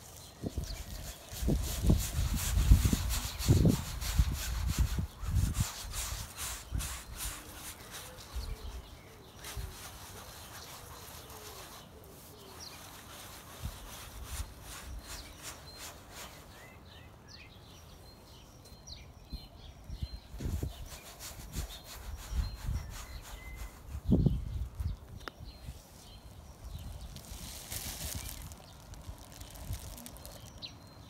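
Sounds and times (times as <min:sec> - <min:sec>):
hands rubbing paint on canvas: 0:00.0 - 0:16.6, 0:20.4 - 0:25.0
bird chirps: 0:13.9 - 0:31.0.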